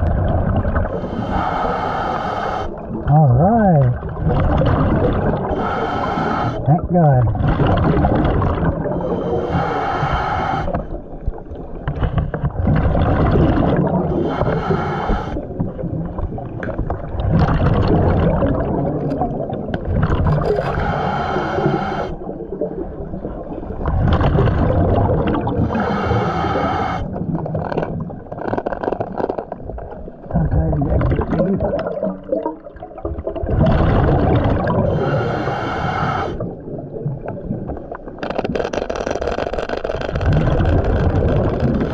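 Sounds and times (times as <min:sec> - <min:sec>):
diver breathing through regulator: 0:00.8 - 0:03.0, 0:05.4 - 0:06.7, 0:08.8 - 0:11.0, 0:14.1 - 0:15.5, 0:20.4 - 0:22.4, 0:25.5 - 0:27.3, 0:34.6 - 0:36.5
bubbling exhale: 0:04.3 - 0:06.8, 0:07.4 - 0:11.0, 0:12.6 - 0:15.9, 0:17.2 - 0:22.8, 0:24.0 - 0:27.4, 0:33.4 - 0:36.7.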